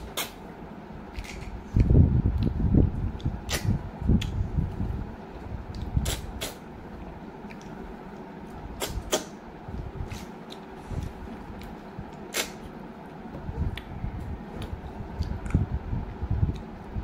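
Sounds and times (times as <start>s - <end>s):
wet chewing and mouth smacking: 7.4s - 8.2s, 14.6s - 15.7s.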